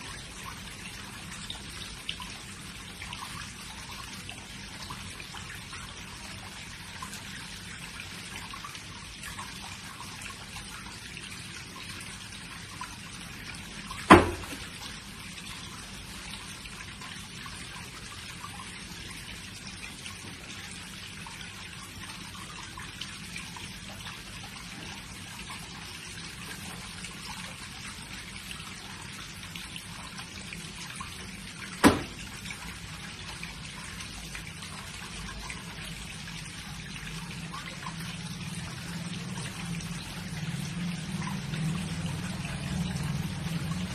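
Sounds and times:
water trickling and dripping: 0:00.0 - 0:43.9
sharp thumps: 0:14.1 - 0:14.7.

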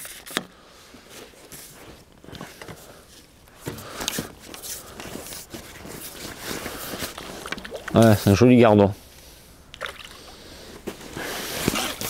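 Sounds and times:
fishing tackle rustling and knocking: 0:00.0 - 0:08.4.

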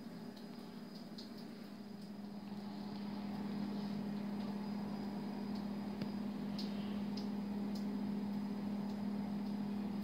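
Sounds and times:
low mechanical hum: 0:00.0 - 0:10.0
faint clicks: 0:05.5 - 0:09.6.

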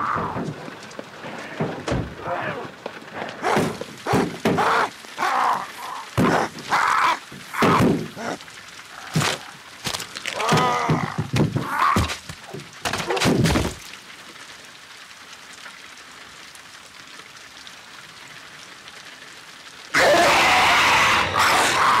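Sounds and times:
groaning creaks: 0:00.0 - 0:13.7
low steady hiss: 0:12.2 - 0:20.7.

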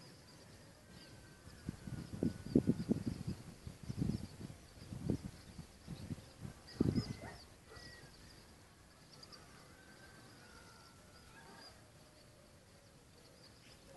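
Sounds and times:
low rumble on microphone: 0:01.5 - 0:07.5.

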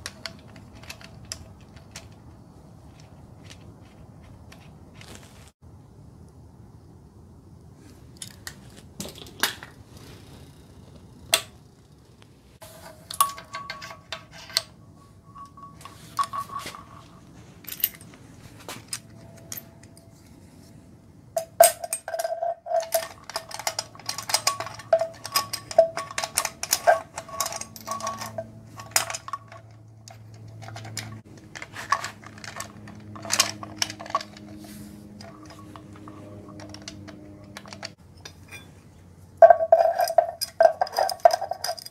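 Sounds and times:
metal chain and tools clinking: 0:00.0 - 0:02.5, 0:12.6 - 0:20.3, 0:21.4 - 0:38.8, 0:39.4 - 0:41.9.

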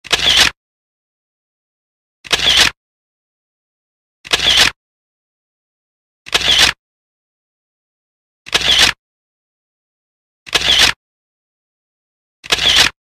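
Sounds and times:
camera shutter click: 0:00.1 - 0:00.6, 0:02.3 - 0:02.8, 0:04.3 - 0:04.8, 0:06.3 - 0:06.8, 0:08.5 - 0:09.0, 0:10.5 - 0:11.0, 0:12.4 - 0:13.0.

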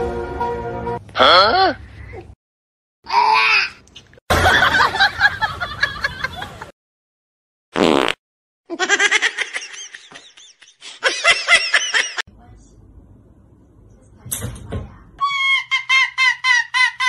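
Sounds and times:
person laughing: 0:08.7 - 0:12.2.

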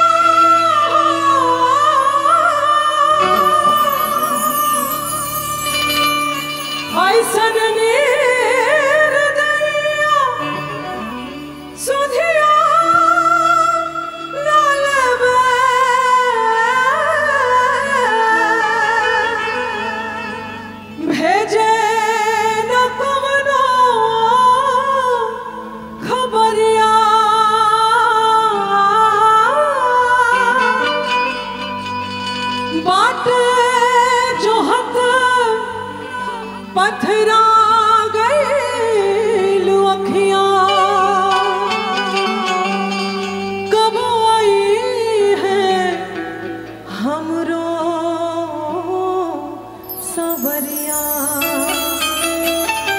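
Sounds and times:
instrumental accompaniment: 0:00.0 - 0:16.5, 0:49.6 - 0:52.9
woman singing into a microphone: 0:00.0 - 0:52.9.

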